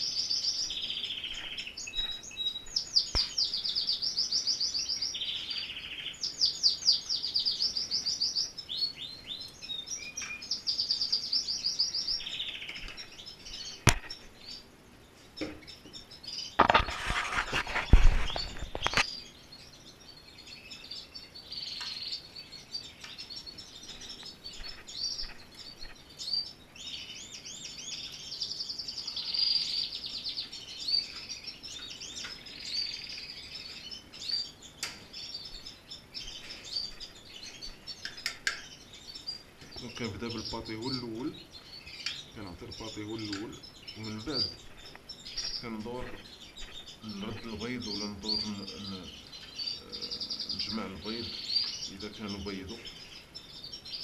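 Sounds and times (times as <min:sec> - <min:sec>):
canaries singing: 0:00.0 - 0:54.0
rustling and knocking: 0:16.6 - 0:19.1.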